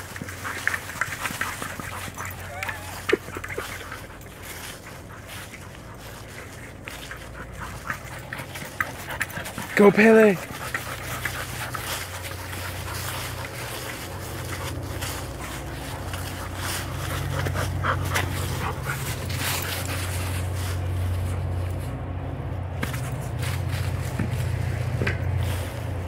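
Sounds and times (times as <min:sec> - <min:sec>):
dry leaves rustling and crunching: 0:00.0 - 0:26.0
steady low rumble: 0:00.0 - 0:26.0
dog panting: 0:00.1 - 0:20.4.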